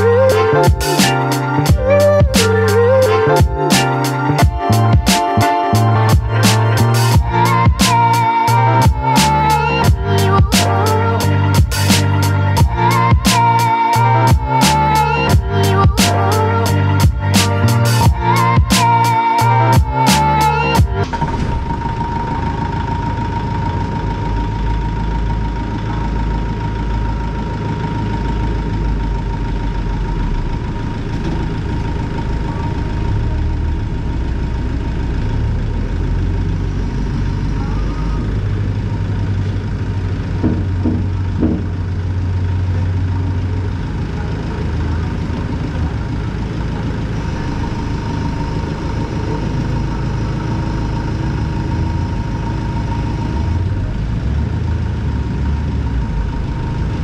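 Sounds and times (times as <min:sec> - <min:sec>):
steady high-pitched tone: 0:00.0 - 0:39.6, 0:46.3 - 0:54.0
tractor diesel engine idling: 0:00.0 - 0:57.0
short knocks: 0:40.4 - 0:41.7.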